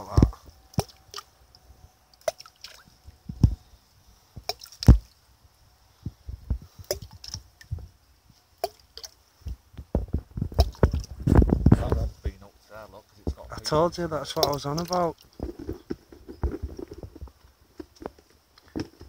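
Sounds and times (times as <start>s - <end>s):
fish splashing in water: 0.7s - 1.3s, 2.1s - 3.0s, 4.4s - 5.2s, 6.8s - 7.7s, 8.6s - 9.2s, 10.6s - 11.2s, 14.3s - 15.2s.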